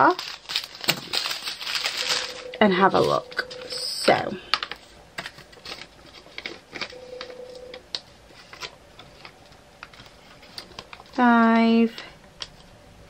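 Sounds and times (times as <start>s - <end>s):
faint steady tone: 6.8s - 7.8s.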